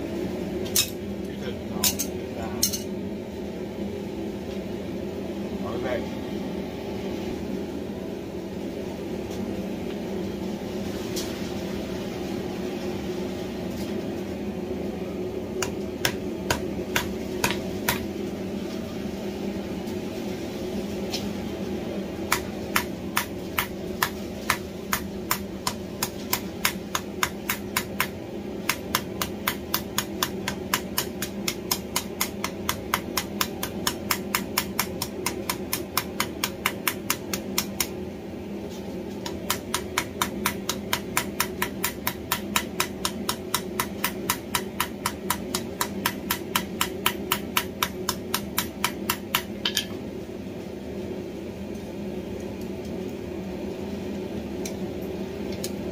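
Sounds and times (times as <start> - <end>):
steady hum: 0.0 - 55.9
hammer striking steel on anvil: 1.8 - 2.9, 39.2 - 50.0.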